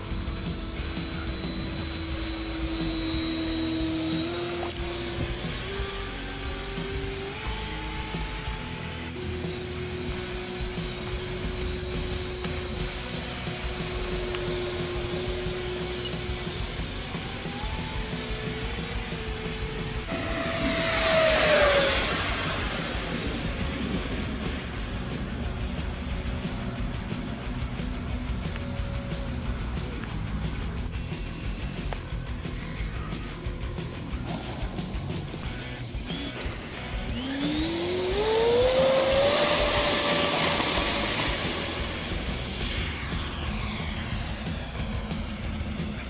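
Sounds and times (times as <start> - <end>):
electric ducted fan whining: 0.0 - 46.0
sharp click: 4.6 - 5.0.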